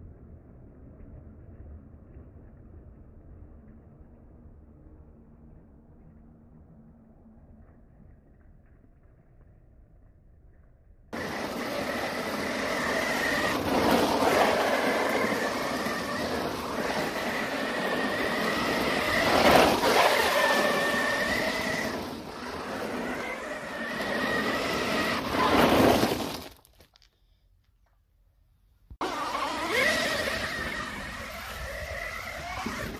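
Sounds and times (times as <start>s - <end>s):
rc motor and gear whine: 11.2s - 26.5s, 29.0s - 32.9s
tyres on gravel: 11.2s - 27.4s, 29.0s - 32.9s.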